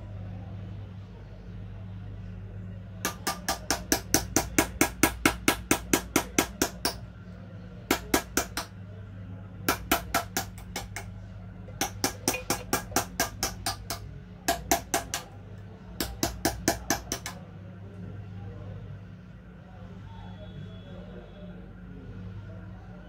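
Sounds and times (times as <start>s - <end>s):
steady low hum: 0.0s - 23.0s
hammer tapping chisel on metal: 3.0s - 7.0s, 7.9s - 8.7s, 9.7s - 11.1s, 11.7s - 15.4s, 16.0s - 17.4s.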